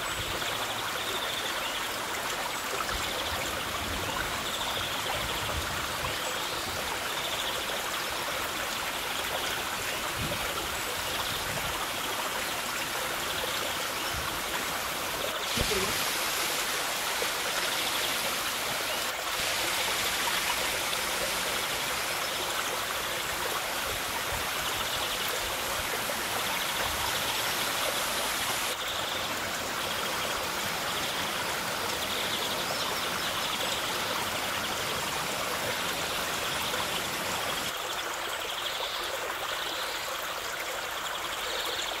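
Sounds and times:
waterfall splashing onto rocks: 8.4 - 28.8.

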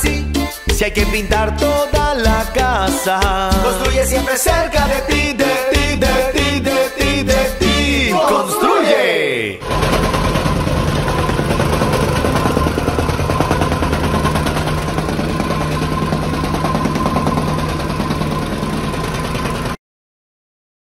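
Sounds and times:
small engine drone: 9.6 - 19.8.

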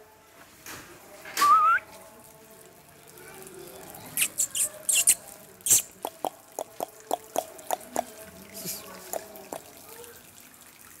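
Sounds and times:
dog lapping water: 3.8 - 10.9.

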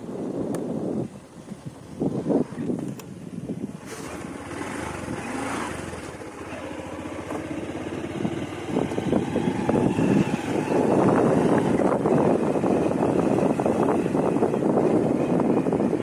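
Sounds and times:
motorcycle engine running: 3.6 - 16.0.

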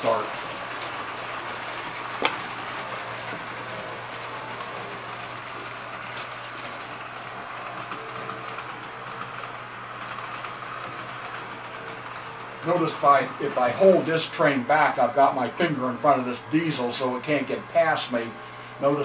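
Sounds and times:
model train wheels rattling: 5.0 - 11.9
steady low hum: 6.9 - 19.0.

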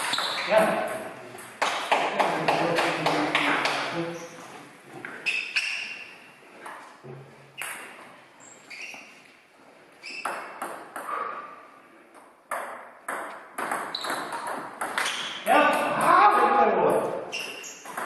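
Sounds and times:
table tennis ball hits: 0.0 - 3.9, 10.2 - 11.4, 12.2 - 16.6, 17.4 - 18.0.

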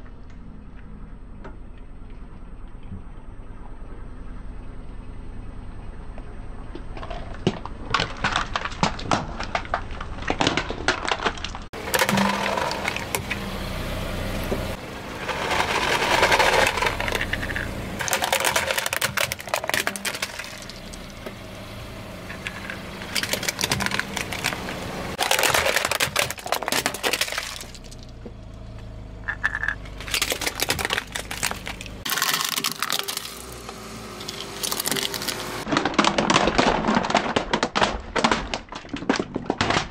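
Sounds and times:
plastic toys cracking under car tyre: 6.7 - 13.4, 15.2 - 21.3, 22.3 - 28.3, 29.2 - 39.9.

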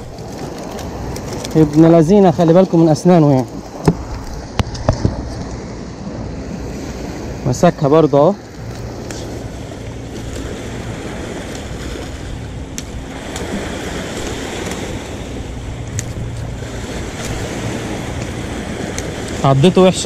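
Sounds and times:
wind buffeting microphone: 0.0 - 20.0
small waves on pebble shore: 8.6 - 20.0.

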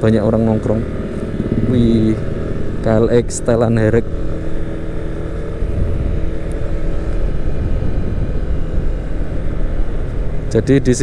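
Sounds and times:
motorbike engine running: 0.0 - 11.0
road noise: 0.0 - 11.0
wind rush over microphone: 5.5 - 10.7.

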